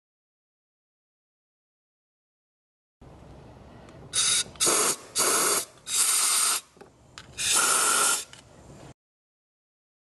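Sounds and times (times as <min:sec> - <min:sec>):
aerosol spray can hissing: 0:04.2 - 0:06.7, 0:07.4 - 0:08.3.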